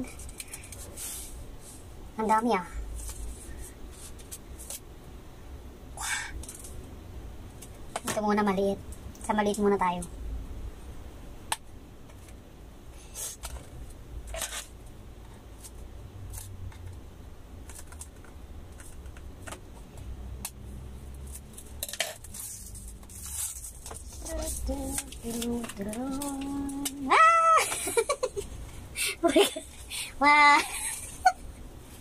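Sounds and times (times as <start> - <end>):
hands handling plastic wrapping: 21.2 - 28.5.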